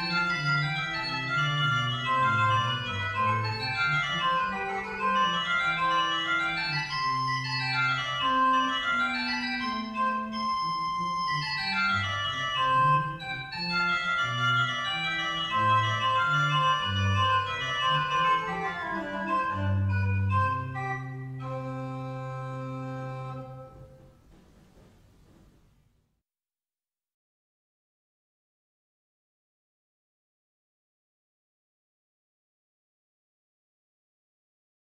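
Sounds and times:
organ playing: 0.0s - 24.3s.

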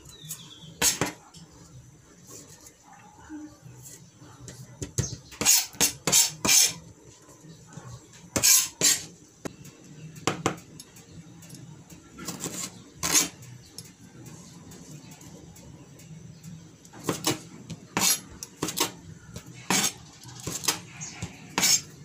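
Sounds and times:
knife cutting on plastic board: 19.7s - 20.8s, 21.5s - 21.9s.

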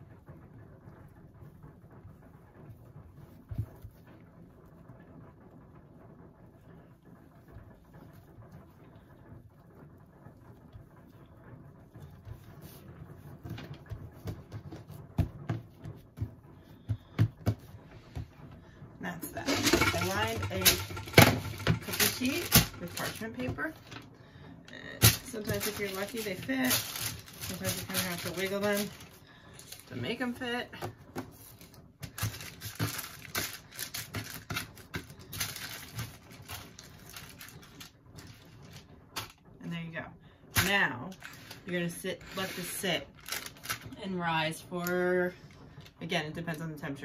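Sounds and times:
parchment paper rustling and crinkling: 7.3s - 18.4s, 19.4s - 24.1s, 25.0s - 39.4s, 40.6s - 44.0s
dough knocks and thumps on countertop: 13.4s - 18.3s.

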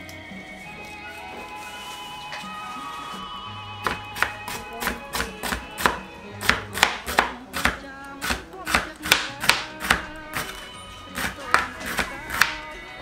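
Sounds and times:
background music: 0.0s - 13.0s
knife slicing on cutting board: 11.2s - 12.6s.

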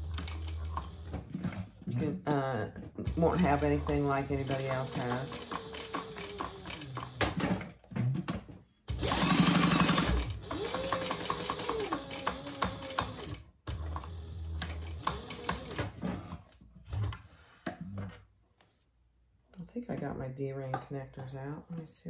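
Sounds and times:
sewing machine stitching: 0.0s - 2.0s, 3.0s - 7.8s, 8.9s - 16.4s.

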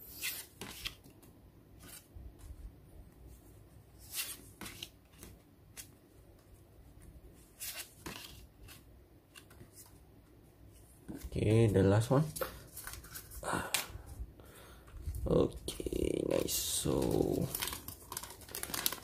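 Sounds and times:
postcards rustling as flipped: 0.1s - 2.6s, 4.0s - 6.0s, 7.4s - 10.0s, 12.2s - 13.9s, 15.0s - 19.0s.

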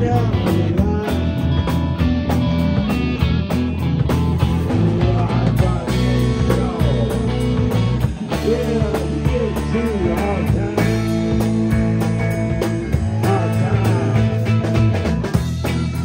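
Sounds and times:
bass guitar: 0.0s - 16.0s
drums: 0.0s - 16.0s
electric guitars: 0.0s - 16.0s.

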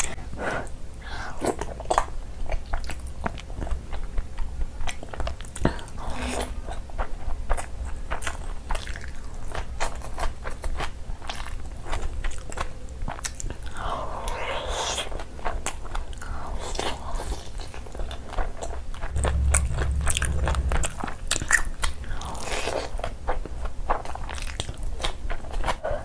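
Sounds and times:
low rumble: 19.1s - 22.4s.

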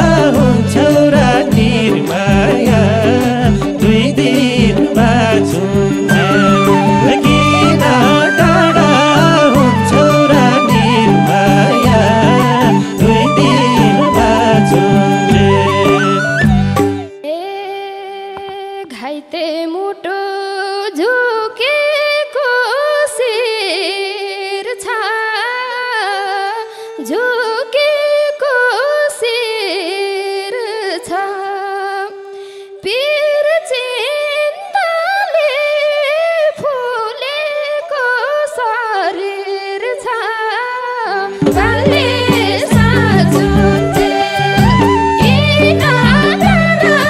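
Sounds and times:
bass: 0.0s - 17.1s, 41.5s - 47.0s
drums: 0.0s - 17.1s, 41.4s - 47.0s
slow gliding folk melody: 0.0s - 17.3s, 41.5s - 47.0s.

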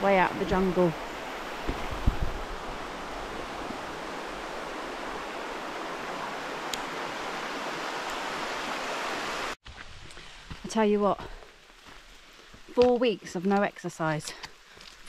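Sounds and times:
river rushing over rocks: 0.2s - 9.6s.

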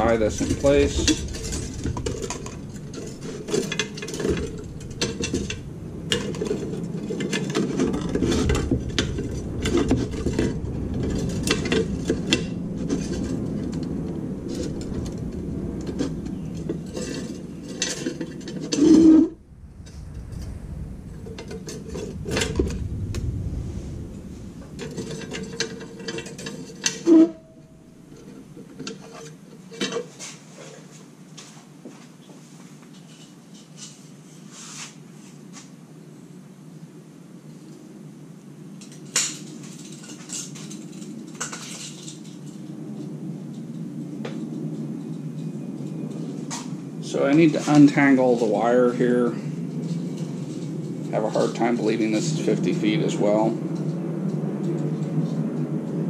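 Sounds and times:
wire rubbing and scraping on metal: 0.0s - 29.4s
small metallic clicks and rattles: 38.8s - 42.7s.

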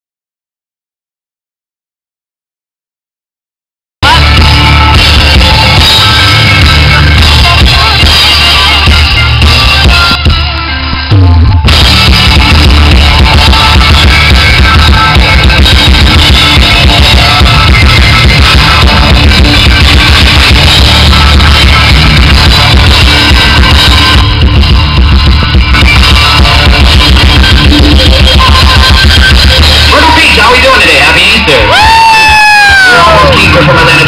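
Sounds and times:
drum kit: 4.0s - 34.0s
electric guitars: 4.0s - 34.0s
rock band playing live: 4.0s - 34.0s.

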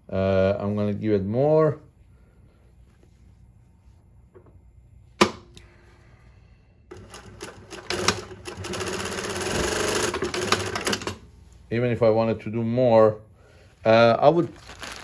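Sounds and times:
sewing machine stitching: 6.9s - 11.2s.

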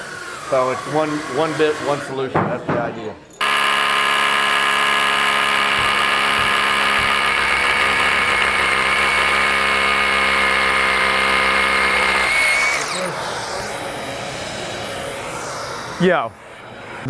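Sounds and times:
rotary hammer drilling into steel: 3.4s - 16.0s.

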